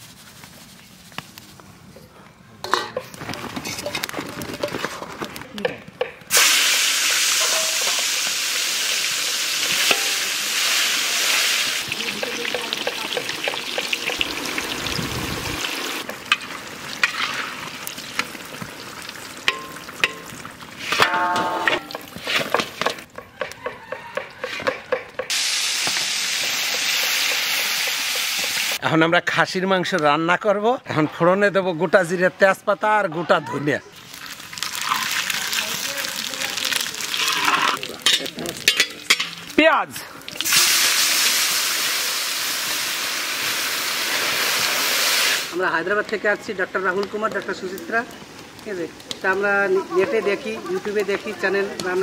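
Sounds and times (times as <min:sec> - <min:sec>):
vegetable slices sizzling in oil: 0:06.3 - 0:22.9, 0:25.3 - 0:28.8, 0:34.0 - 0:39.6, 0:40.3 - 0:45.8
utensil clinking and scraping: 0:07.4 - 0:08.3.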